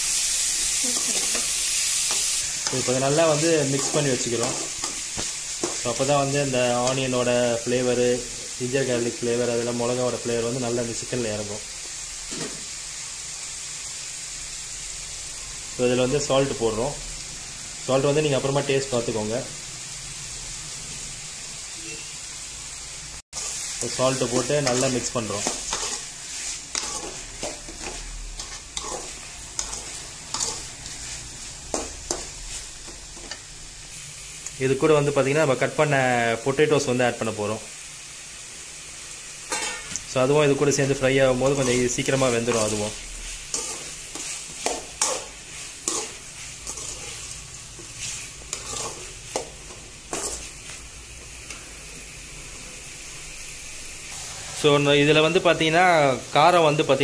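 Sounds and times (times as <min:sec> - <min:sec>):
chicken sizzling in a pan: 0:00.0 - 0:57.0
metal ladle scraping a pan: 0:24.6 - 0:32.3, 0:39.5 - 0:40.0, 0:41.5 - 0:49.5, 0:54.1 - 0:54.8.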